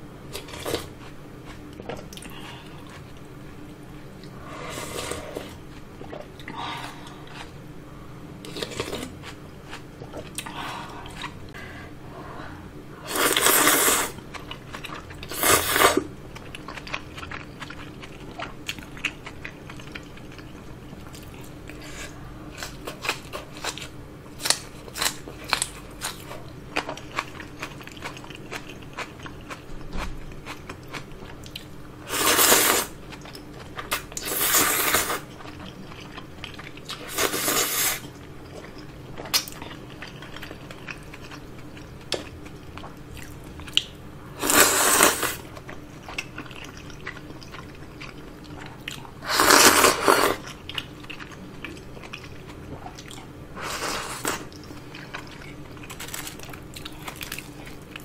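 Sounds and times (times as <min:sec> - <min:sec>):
close-up chewing with mouth clicks: 0:22.5 - 0:31.7, 0:33.1 - 0:37.1, 0:45.4 - 0:49.2, 0:50.2 - 0:53.4.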